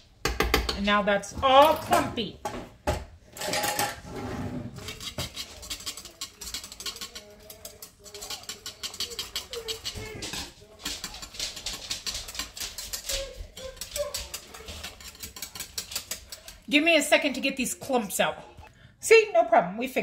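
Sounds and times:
utensil scraping metal pot: 0:03.3 - 0:18.4.

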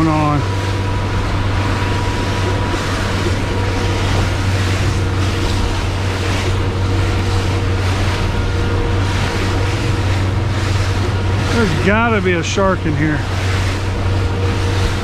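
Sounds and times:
motorboat engine drone: 0:00.0 - 0:15.0
water rushing and splashing: 0:00.0 - 0:15.0
wind noise: 0:00.4 - 0:12.4.

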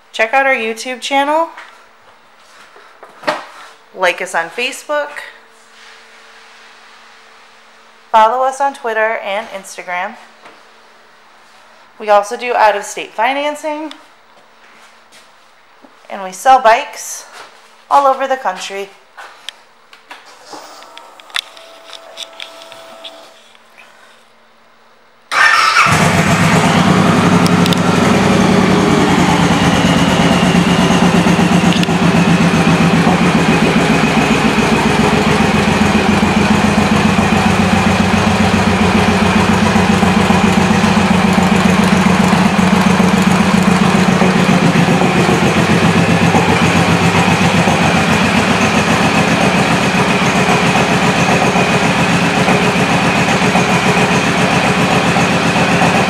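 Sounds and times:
motorcycle engine idling: 0:25.4 - 0:56.0.

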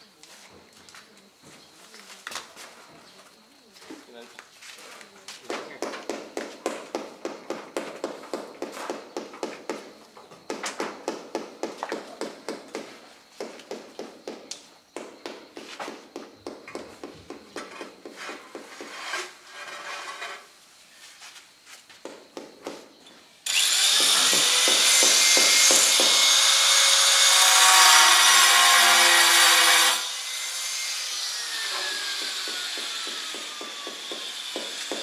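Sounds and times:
angle grinder cutting tile: 0:18.8 - 0:20.5, 0:23.5 - 0:35.0
taps and knocks: 0:22.0 - 0:22.9.

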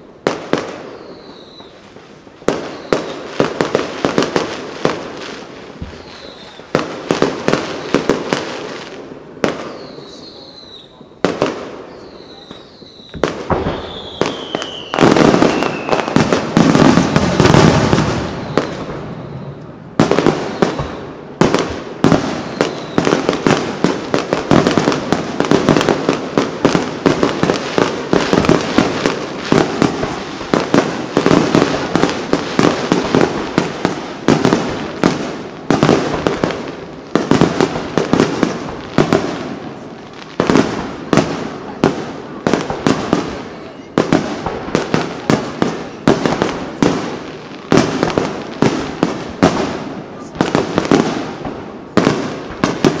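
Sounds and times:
fireworks bursts banging: 0:00.0 - 0:53.0
fireworks crackling: 0:00.0 - 0:53.0
firework whistle falling: 0:00.8 - 0:01.8, 0:02.5 - 0:03.3, 0:05.8 - 0:06.7, 0:09.5 - 0:11.2, 0:11.8 - 0:19.7, 0:20.4 - 0:21.1, 0:22.3 - 0:23.2.

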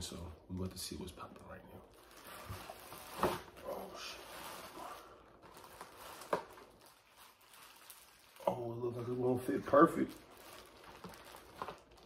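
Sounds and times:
sharp plastic crackles: 0:00.5 - 0:12.0
plastic bag crinkling: 0:01.2 - 0:12.0.

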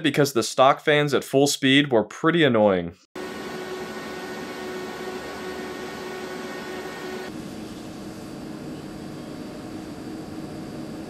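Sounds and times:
computer fans whooshing: 0:03.2 - 0:11.0
faint whining tones: 0:03.3 - 0:11.0.

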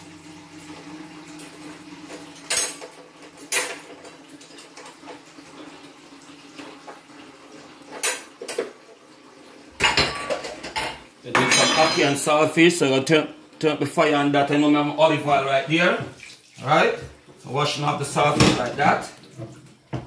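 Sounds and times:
pots and utensils clinking: 0:02.4 - 0:05.2, 0:07.9 - 0:08.8, 0:09.8 - 0:12.3.

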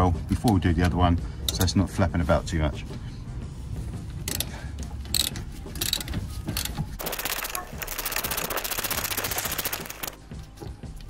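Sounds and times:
ratchet clicking: 0:04.3 - 0:04.5, 0:05.1 - 0:10.2.

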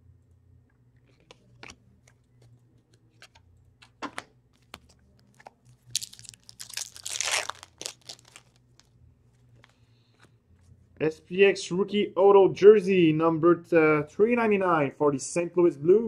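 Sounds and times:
wrapper crinkling: 0:04.6 - 0:09.8.

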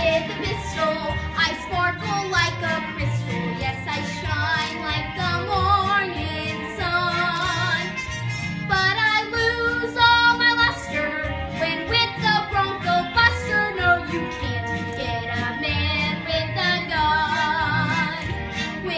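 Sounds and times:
musical accompaniment with bass beat: 0:00.0 - 0:18.9
young woman singing show tune: 0:08.7 - 0:18.9.

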